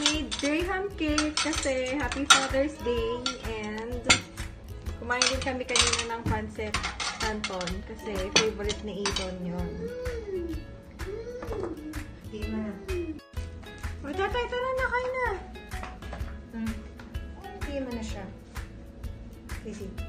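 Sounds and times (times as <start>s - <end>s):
cutlery and dishes clinking: 0.0s - 9.5s.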